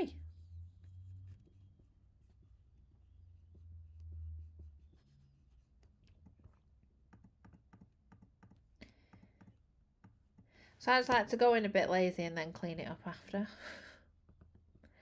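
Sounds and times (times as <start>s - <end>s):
faint low hum: 0.0s - 15.0s
soft clicks and light scratches: 0.8s - 11.3s.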